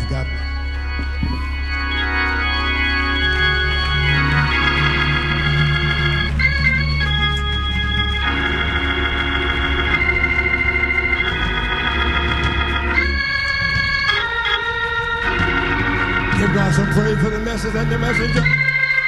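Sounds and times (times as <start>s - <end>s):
church organ chords: 0.0s - 19.0s
organ bass note: 0.0s - 19.0s.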